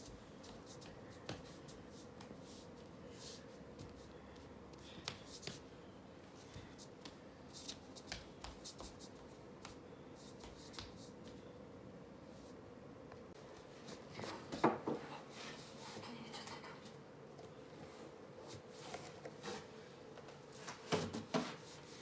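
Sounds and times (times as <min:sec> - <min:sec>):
steady low hum: 0:00.0 - 0:20.8
bare feet pattering on wooden floor: 0:06.4 - 0:11.5.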